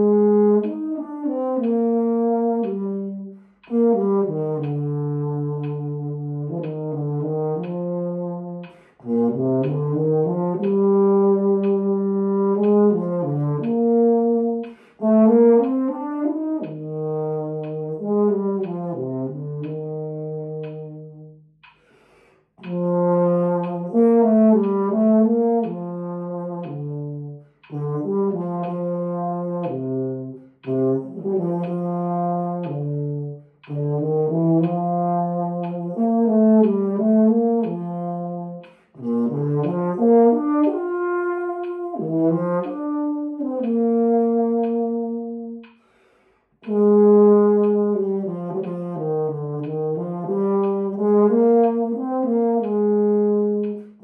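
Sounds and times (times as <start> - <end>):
baritone horn melody: 0.0 - 21.5, 22.6 - 45.7, 46.6 - 54.0.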